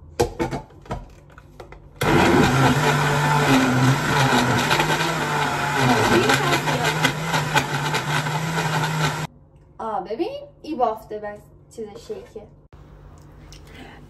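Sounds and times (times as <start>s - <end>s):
blender running: 2.0s - 9.3s.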